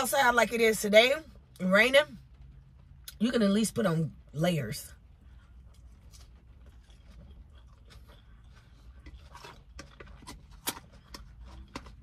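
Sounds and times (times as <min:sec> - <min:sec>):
low steady hum: 0:00.0 - 0:12.0
person chewing food: 0:05.0 - 0:12.0.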